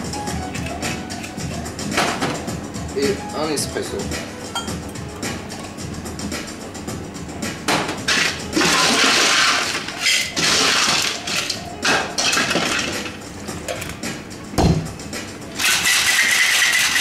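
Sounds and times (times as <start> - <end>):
ice cubes clattering in metal shaker: 8.1 - 11.6, 15.6 - 17.0.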